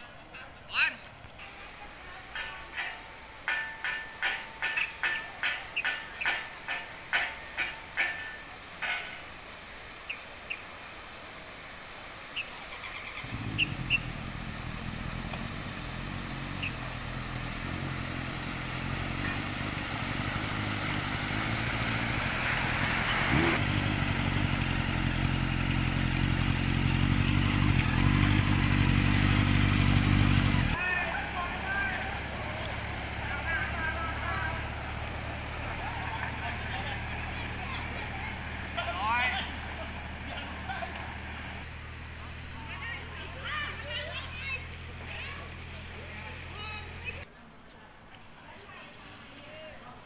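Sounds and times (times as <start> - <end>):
low engine hum: 11.8 - 47.3
water thrown up by tyres: 12.3 - 42.3.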